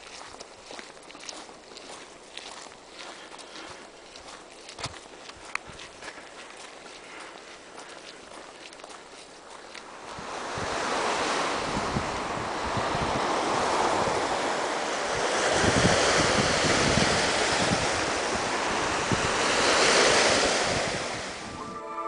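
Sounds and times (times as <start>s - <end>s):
waves breaking on rocky shore: 9.5s - 21.6s
wind buffeting microphone: 10.0s - 21.6s.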